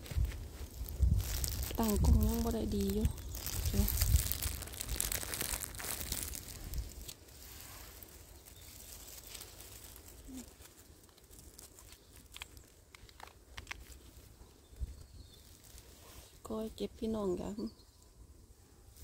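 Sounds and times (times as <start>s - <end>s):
crinkling rustling handling noise: 0.0s - 17.0s
small clicks: 11.8s - 14.0s.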